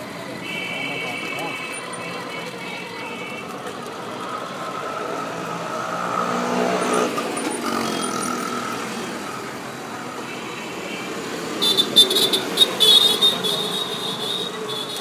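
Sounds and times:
passing vehicle engine: 3.8s - 10.1s.

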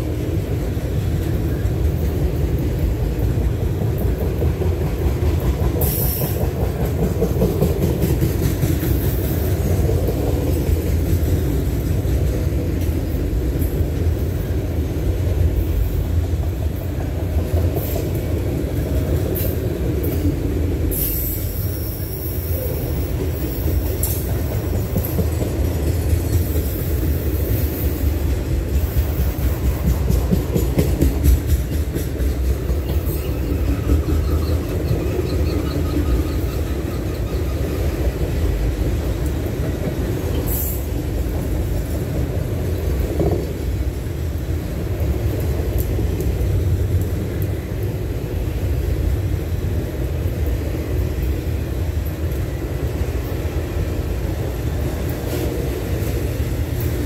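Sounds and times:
rumble of train wheels on rails: 0.0s - 57.0s.

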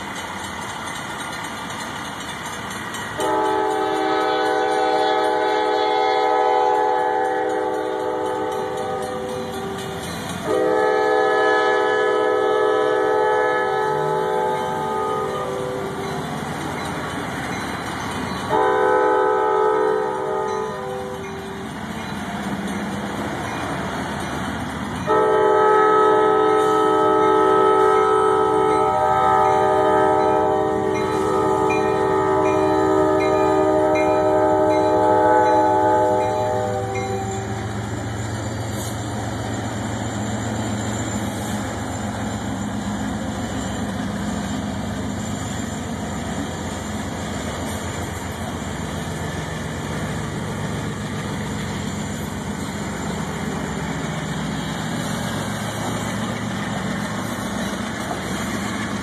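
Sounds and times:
low rumble of train rolling: 0.0s - 59.0s
locomotive air horn blast: 3.2s - 9.3s, 10.4s - 15.9s, 18.5s - 21.2s, 25.1s - 37.5s.

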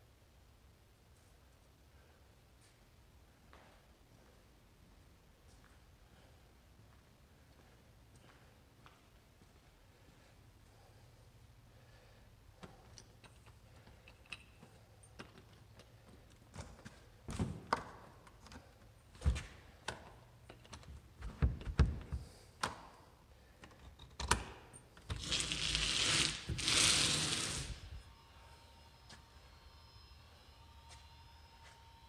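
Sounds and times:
door scraping open: 25.1s - 28.0s.

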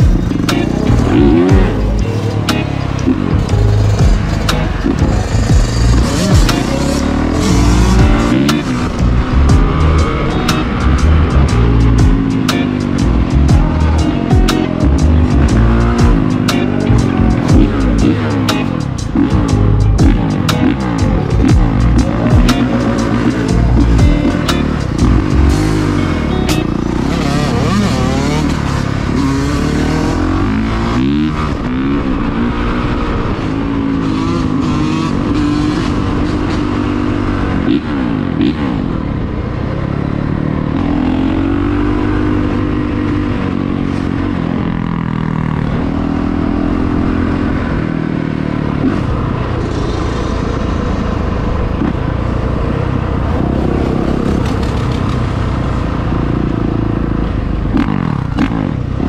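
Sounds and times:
engines running and revving: 0.0s - 59.0s.

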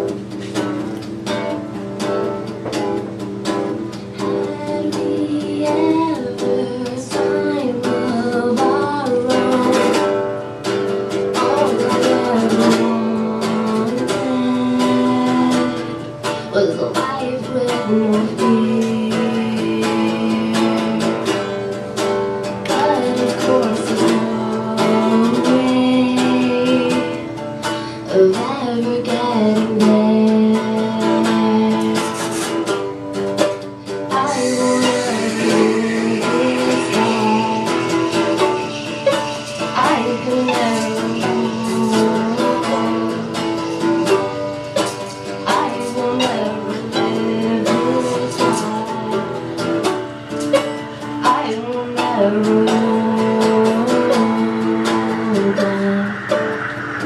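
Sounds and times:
guitar playing: 0.0s - 57.0s
person singing: 3.8s - 57.0s.

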